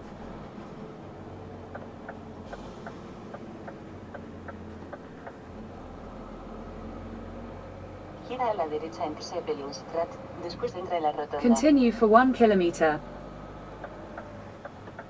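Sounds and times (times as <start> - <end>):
truck engine humming: 0.0 - 15.0
turn-signal indicator ticking: 1.7 - 5.4, 13.8 - 15.0.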